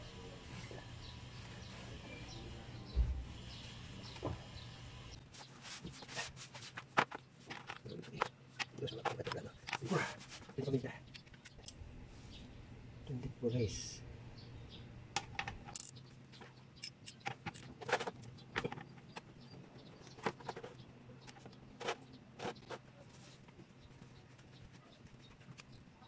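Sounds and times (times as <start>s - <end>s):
metal socket clinking: 15.2s - 16.0s, 16.8s - 18.4s.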